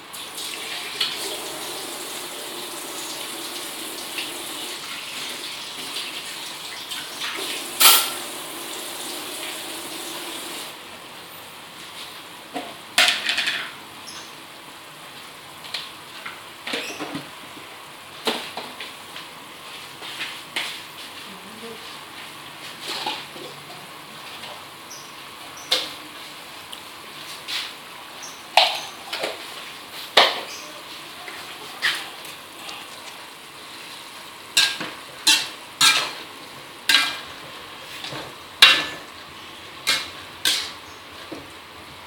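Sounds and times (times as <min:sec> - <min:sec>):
food sizzling in a wok: 0:00.0 - 0:10.8, 0:28.6 - 0:41.5
metal spatula scraping a wok: 0:34.6 - 0:36.3, 0:36.9 - 0:37.3, 0:39.8 - 0:41.0.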